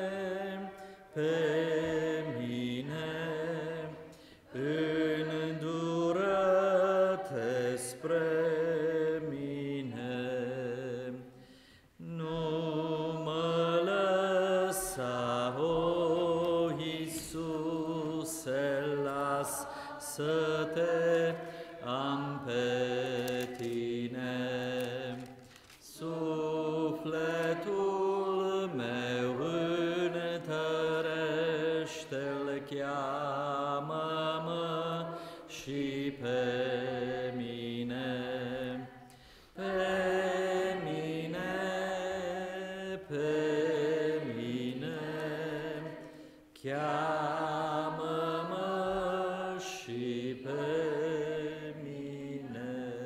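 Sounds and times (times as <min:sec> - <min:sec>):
slow hymn singing: 0:00.0 - 0:53.0
singer breathing: 0:04.1 - 0:04.5, 0:11.3 - 0:12.0, 0:19.6 - 0:20.0, 0:21.4 - 0:21.8, 0:35.2 - 0:35.5, 0:39.0 - 0:39.6, 0:46.0 - 0:46.5.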